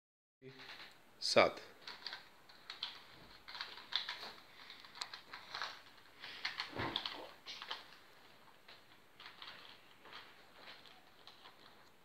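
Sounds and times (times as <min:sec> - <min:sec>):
puzzle cube plastic clicks: 0:01.8 - 0:08.0, 0:09.2 - 0:12.0.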